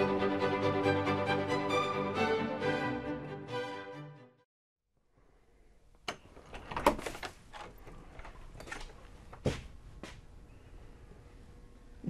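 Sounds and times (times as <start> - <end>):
fiddle music: 0.0 - 4.5
footsteps: 8.2 - 10.3.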